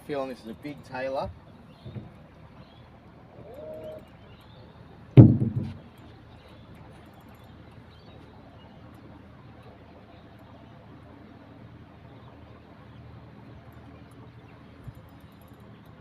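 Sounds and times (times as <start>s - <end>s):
faint steady background noise: 0.0s - 16.0s
sharp knock: 5.2s - 5.8s.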